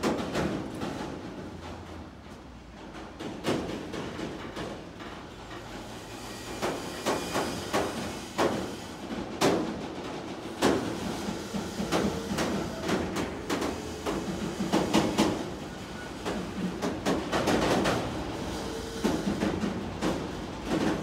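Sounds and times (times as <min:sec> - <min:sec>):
freight train rumbling: 0:00.0 - 0:21.0.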